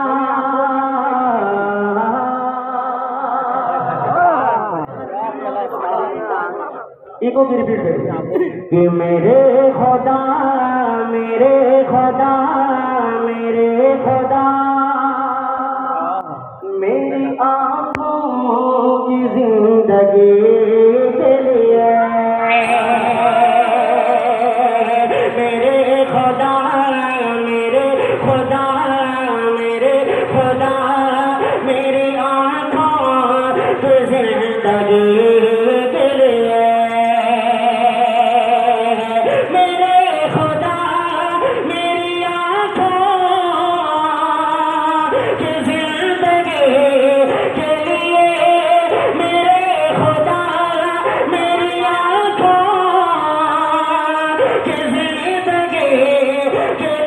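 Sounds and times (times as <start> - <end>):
man singing into a microphone: 0.0 - 5.0, 7.2 - 57.0.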